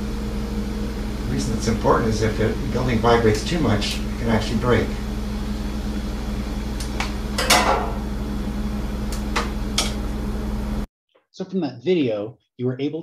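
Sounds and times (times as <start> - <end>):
low electrical hum with hiss: 0.2 - 8.0.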